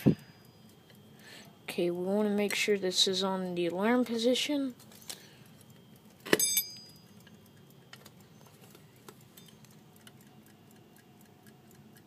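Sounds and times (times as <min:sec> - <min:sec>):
alarm clock ticking: 0:05.4 - 0:08.4.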